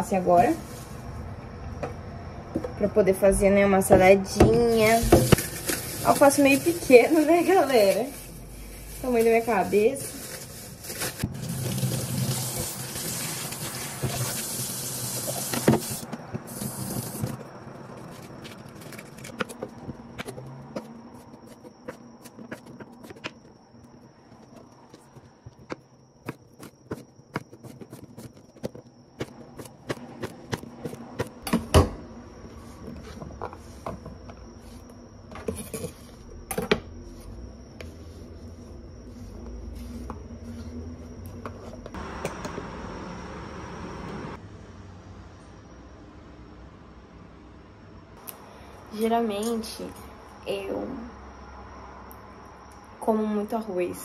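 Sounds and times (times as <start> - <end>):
tap water running: 11.3 - 17.4.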